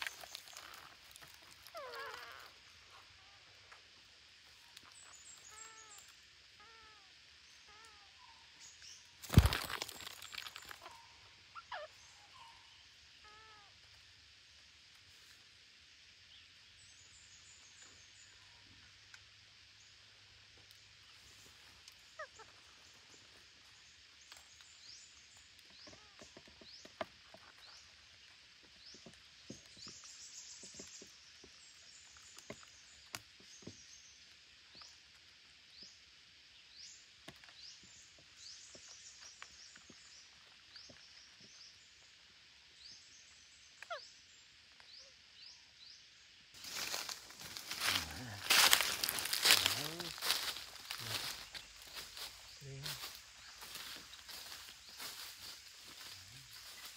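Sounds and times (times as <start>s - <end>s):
bird chirps: 0.0s - 3.4s, 4.5s - 13.7s.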